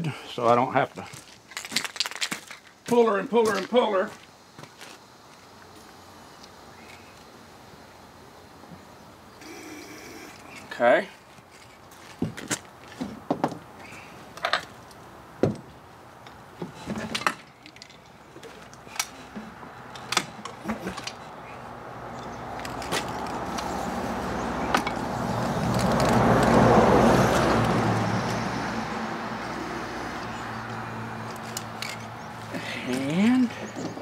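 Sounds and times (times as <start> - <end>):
passing motor vehicle: 18.9 - 34.0.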